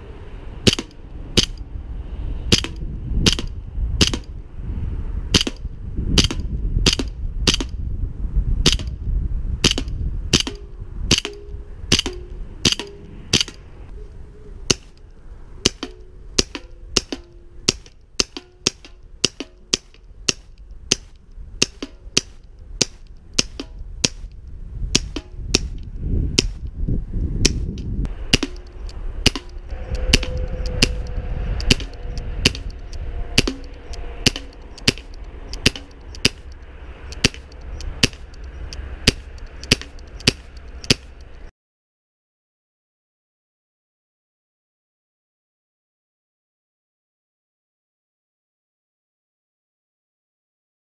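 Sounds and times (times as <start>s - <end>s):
bb pistols firing: 5.4s - 5.6s, 37.2s - 38.3s.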